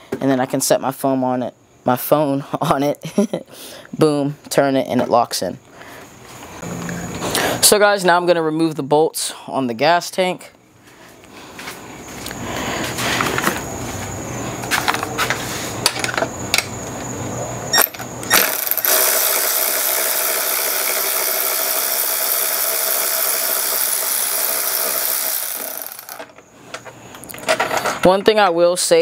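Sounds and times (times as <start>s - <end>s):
power tool motor spinning: 17.8s - 26.4s.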